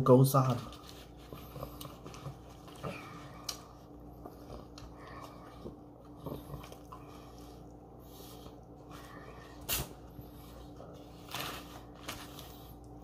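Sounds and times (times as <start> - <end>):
foil wrapper crinkling: 11.0 - 12.8.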